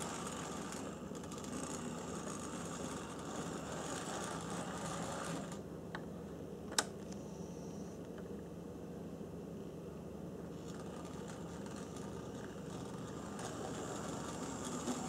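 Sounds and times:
model locomotive motor and gears: 0.0 - 5.6, 10.5 - 15.0.

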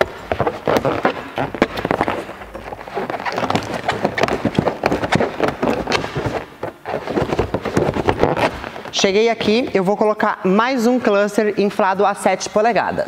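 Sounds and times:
balloons squeaking: 0.0 - 9.1.

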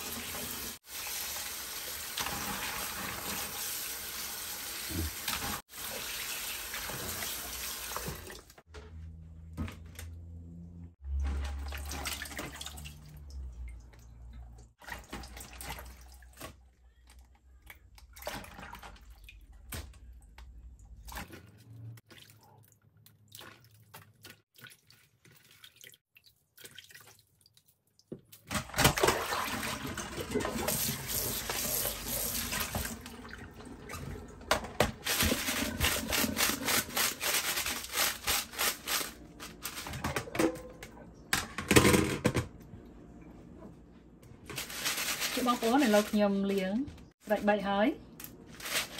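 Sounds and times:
running tap water: 0.0 - 8.6, 29.1 - 37.6
water splashing in steel sink: 11.1 - 16.6, 17.7 - 20.0, 20.8 - 39.0.

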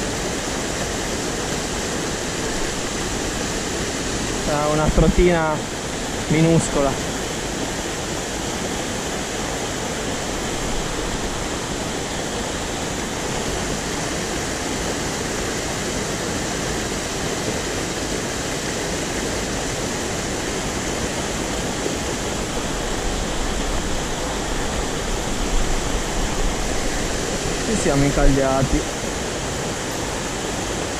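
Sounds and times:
water rushing over rocks: 0.0 - 30.9.

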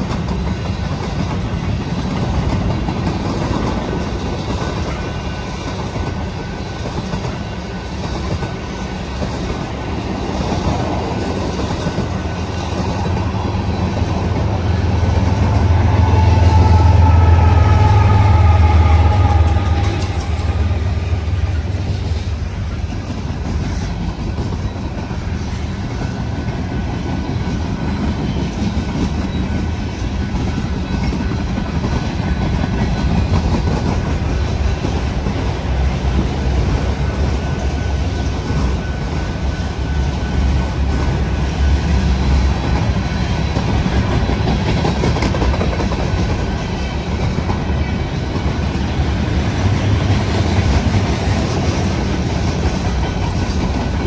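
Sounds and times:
freight train cars rolling past: 0.0 - 54.0.

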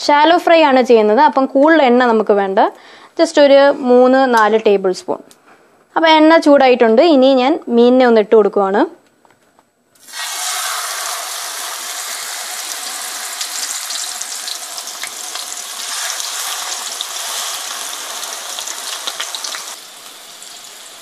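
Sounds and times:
fish sizzling in hot oil: 10.0 - 21.0.

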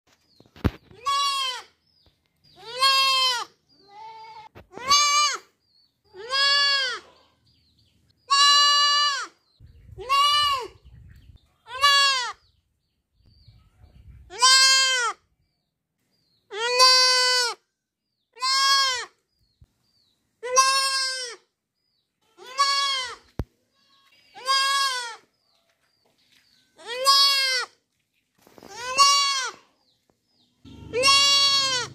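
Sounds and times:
goat kid bleating: 0.6 - 1.8, 2.5 - 7.2, 8.2 - 10.8, 11.6 - 12.5, 14.3 - 15.2, 16.4 - 17.6, 18.3 - 19.2, 20.4 - 21.5, 22.2 - 25.3, 26.8 - 27.8, 28.6 - 29.8, 30.7 - 31.9.

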